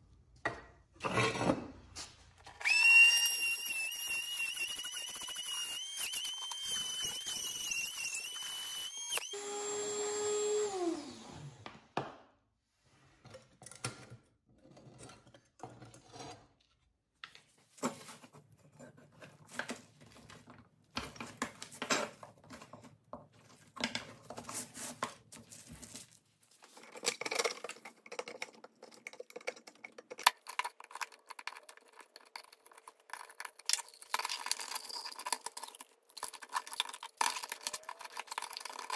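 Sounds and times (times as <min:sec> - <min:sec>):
rotary tool whining: 0:02.6 - 0:11.6.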